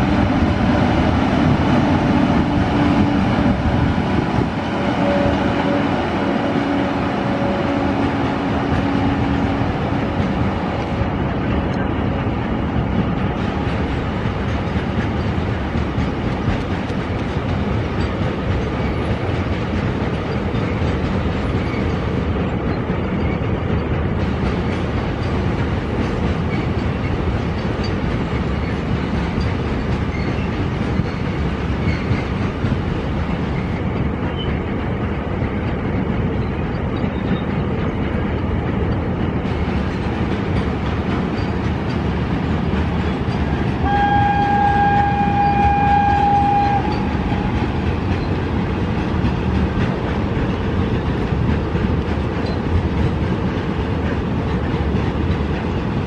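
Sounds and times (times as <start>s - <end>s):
train wheels rumbling on rails: 0.0s - 56.0s
locomotive horn: 4.7s - 9.7s, 43.8s - 47.5s.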